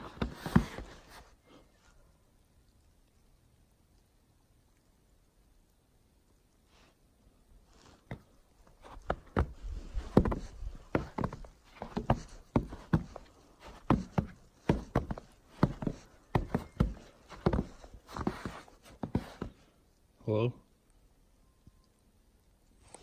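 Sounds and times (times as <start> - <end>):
footsteps on wooden boards: 0.0 - 1.1, 8.1 - 19.6.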